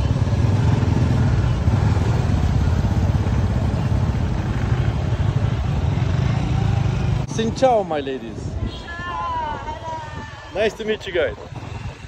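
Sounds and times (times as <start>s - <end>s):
motor scooter running: 0.0s - 7.3s.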